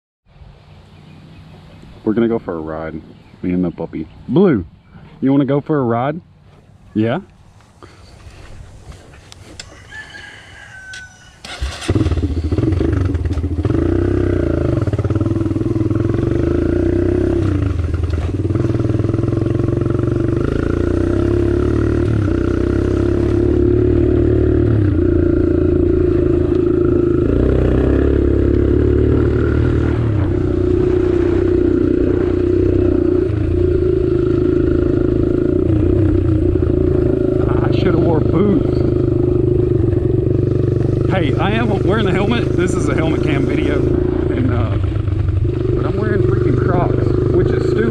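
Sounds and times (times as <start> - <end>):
dirt bike engine running: 11.5 - 47.9.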